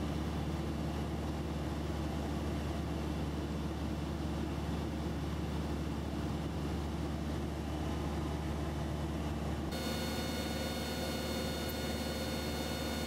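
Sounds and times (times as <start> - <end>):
light aircraft engine droning: 0.0 - 13.0.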